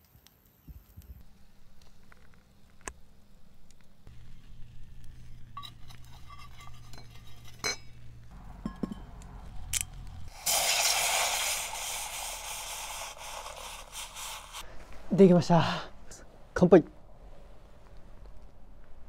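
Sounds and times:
metal cup clinking on grill grate: 0:04.7 - 0:09.9.

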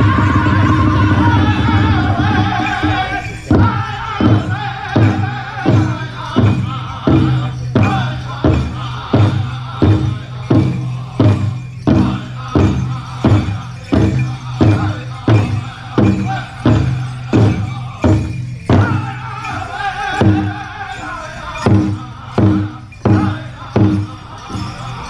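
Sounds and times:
group singing: 0:00.0 - 0:25.0.

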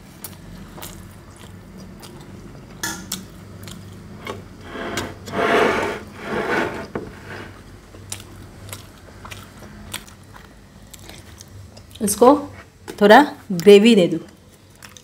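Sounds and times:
fried bread crunching: 0:14.4 - 0:15.0.

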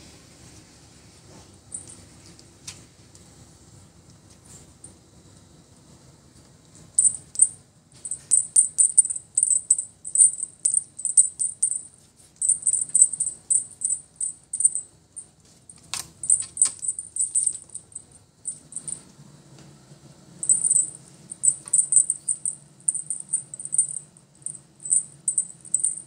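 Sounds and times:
small bell jingling: 0:01.7 - 0:02.0, 0:07.0 - 0:19.0, 0:20.4 - 0:26.0.

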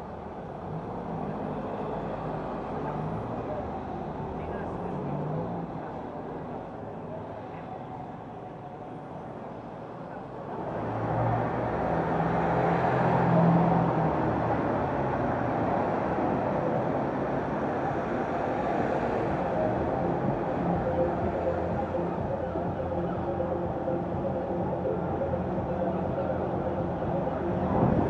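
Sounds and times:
steady traffic noise: 0:00.0 - 0:28.0.

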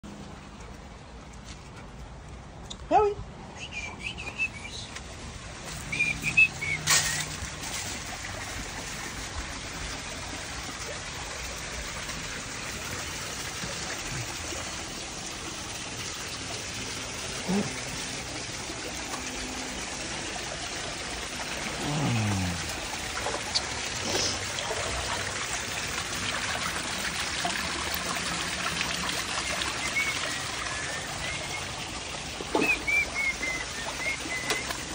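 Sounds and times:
water trickling and splashing: 0:00.0 - 0:03.1, 0:03.7 - 0:34.9
high chirping whistles: 0:05.9 - 0:07.3, 0:29.8 - 0:31.7, 0:32.6 - 0:34.7.

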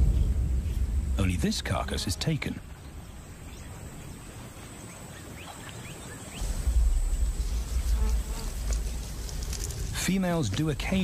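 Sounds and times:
deep low rumble: 0:00.0 - 0:03.3, 0:06.4 - 0:10.2.

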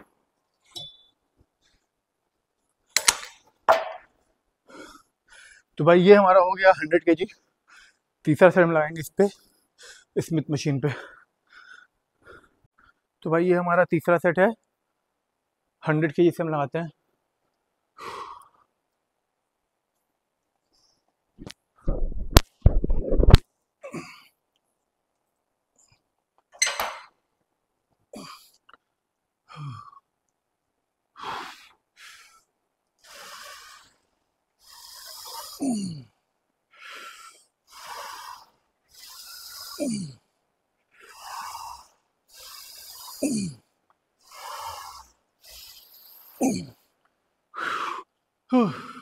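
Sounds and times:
man breathing hard: 0:04.6 - 0:05.7, 0:31.2 - 0:34.0, 0:36.7 - 0:40.2, 0:44.2 - 0:46.8, 0:47.5 - 0:49.0
man grunting: 0:35.6 - 0:36.1, 0:39.7 - 0:40.2, 0:43.2 - 0:43.6, 0:46.4 - 0:46.8, 0:48.5 - 0:49.0.

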